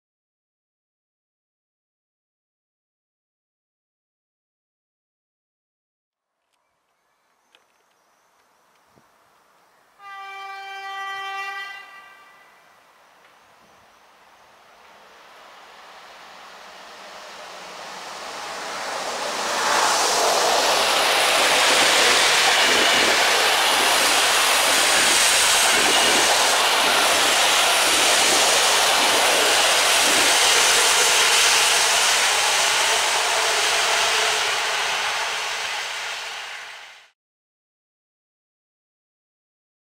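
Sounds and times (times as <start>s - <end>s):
train wheels rushing on rails: 7.5s - 37.1s.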